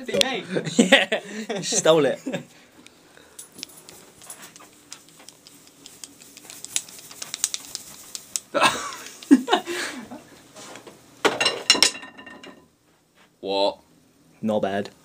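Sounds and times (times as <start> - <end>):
light clicks and taps: 2.8 - 9.3.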